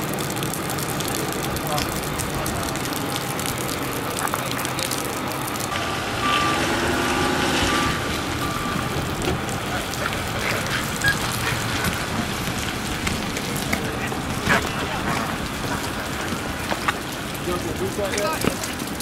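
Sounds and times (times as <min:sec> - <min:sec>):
steady rain hiss: 0:00.0 - 0:19.0
truck engine driving past: 0:05.7 - 0:17.4
short beeps: 0:06.2 - 0:06.6, 0:07.6 - 0:08.9.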